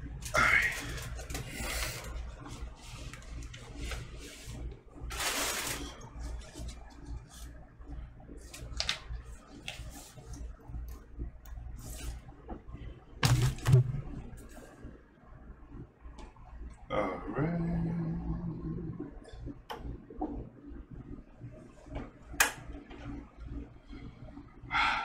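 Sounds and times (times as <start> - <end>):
low steady hum: 0.0 - 25.0
vinyl record sleeve rustling: 0.4 - 7.6, 8.4 - 10.5.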